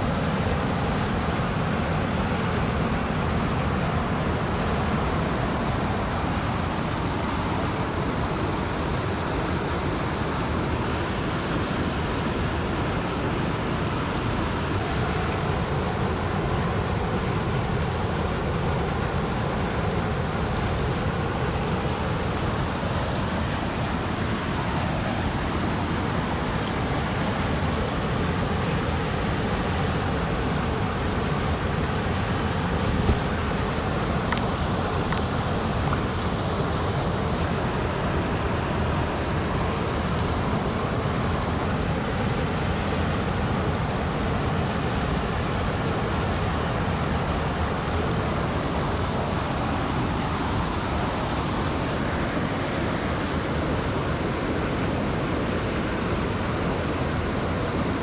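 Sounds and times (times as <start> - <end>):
steady rushing noise: 0.0 - 58.0
sharp click: 34.3 - 36.1.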